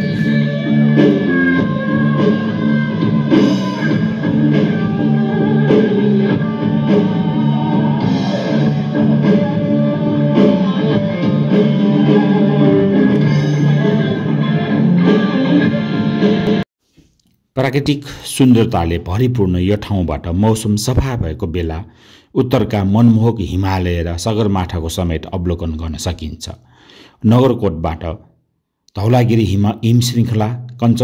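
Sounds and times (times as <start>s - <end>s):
instrumental guitar music: 0.0s - 16.6s.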